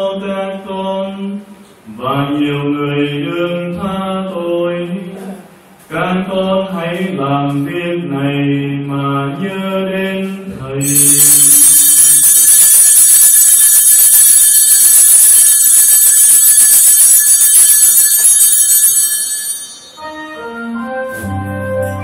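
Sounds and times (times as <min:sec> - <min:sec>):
altar bells shaken: 0:10.8 - 0:20.1
soft organ-like music: 0:19.8 - 0:22.0.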